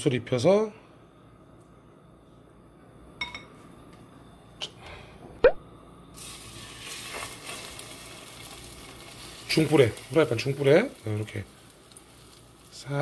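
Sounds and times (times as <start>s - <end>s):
meat sizzling in a frying pan: 6.2s - 13.0s.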